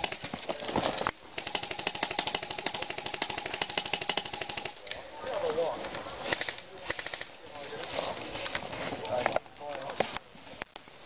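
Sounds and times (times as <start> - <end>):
airsoft rifle firing rapidly: 1.4 - 4.8.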